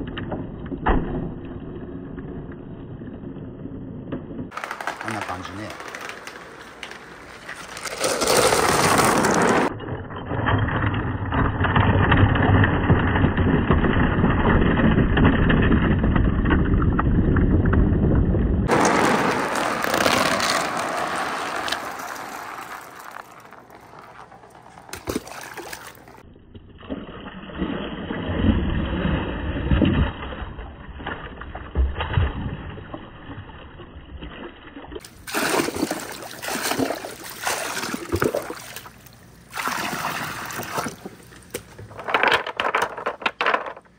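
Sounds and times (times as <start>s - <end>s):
glass marbles rolling and clicking: 4.5s - 16.8s, 18.7s - 26.2s, 41.9s - 43.9s
water rushing down wooden chute: 18.7s - 26.2s, 35.0s - 41.2s
water splashing into plastic tub: 24.9s - 26.2s, 34.3s - 41.2s.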